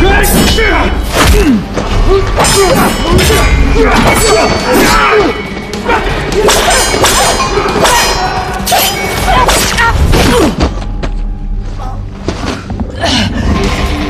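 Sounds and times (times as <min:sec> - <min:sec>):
metal weapons clanging: 0:02.3 - 0:10.0.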